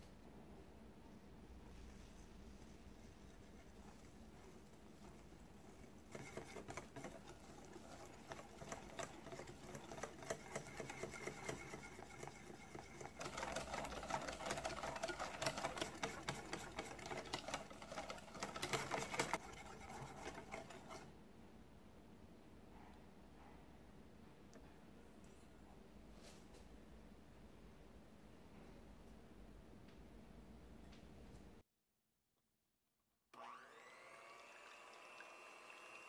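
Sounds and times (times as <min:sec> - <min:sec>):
whisk clicking against glass bowl: 0:05.0 - 0:21.0.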